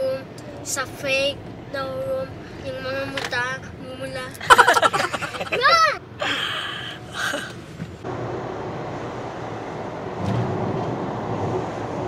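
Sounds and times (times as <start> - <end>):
car road and engine noise: 0.0 - 12.0.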